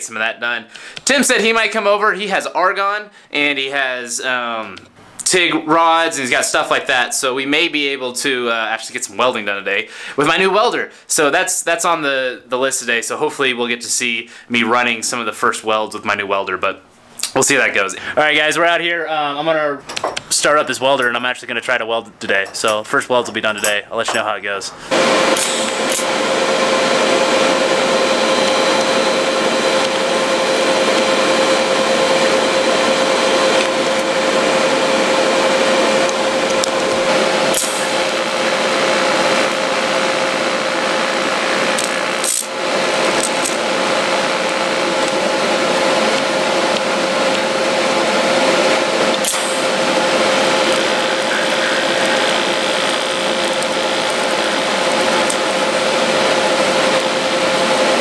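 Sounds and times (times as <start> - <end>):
welding arc buzzing hiss: 24.8 - 58.0.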